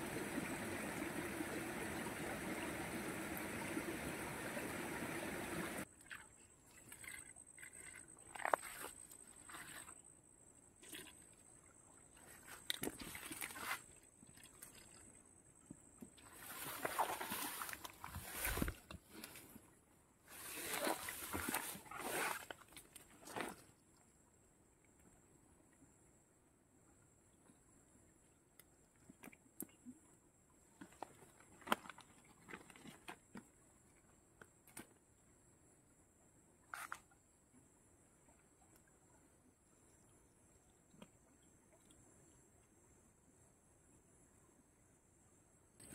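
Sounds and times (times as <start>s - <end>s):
grass and leaves rustling: 16.3s - 19.6s, 20.3s - 23.6s.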